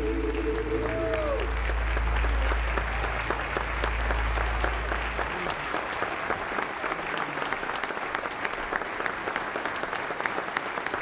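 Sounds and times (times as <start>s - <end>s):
low held note: 0.0s - 5.3s
audience clapping: 0.0s - 11.0s.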